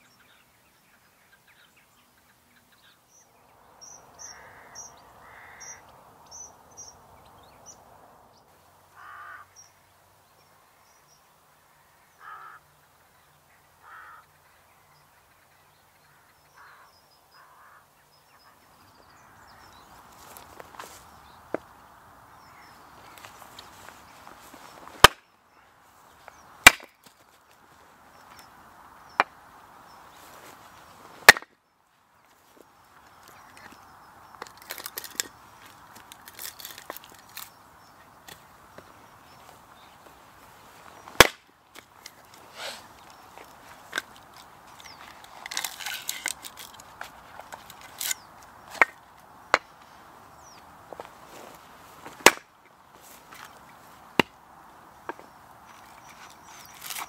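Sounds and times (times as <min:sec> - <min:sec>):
axe chopping firewood: 0:25.0 - 0:25.2, 0:26.6 - 0:27.0, 0:31.2 - 0:31.6, 0:41.1 - 0:41.8, 0:52.0 - 0:52.5, 0:54.2 - 0:54.4
firewood clattering and scraping: 0:34.4 - 0:37.5.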